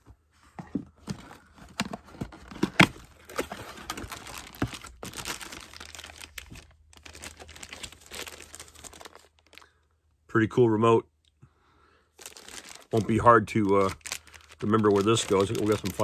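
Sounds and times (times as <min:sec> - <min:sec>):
packaging crinkling and tearing: 0:01.6 - 0:09.7, 0:12.2 - 0:16.0.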